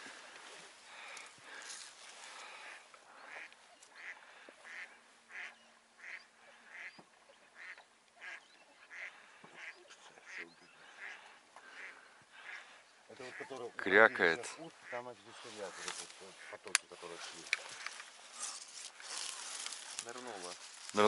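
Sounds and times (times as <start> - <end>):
duck quacking: 2.6 - 7.0, 7.6 - 14.2.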